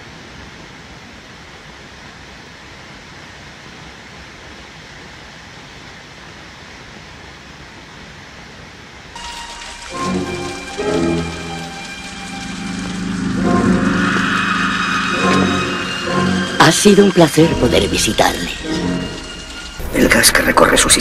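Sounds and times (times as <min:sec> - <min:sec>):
steady rushing hiss: 0:08.9 - 0:21.0
sustained pitched tones: 0:09.2 - 0:21.0.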